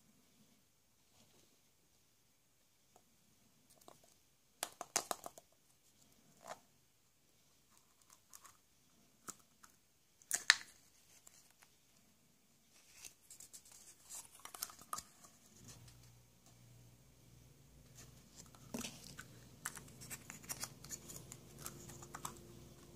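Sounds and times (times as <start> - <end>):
paper sticker rustling: 17.9 - 22.9.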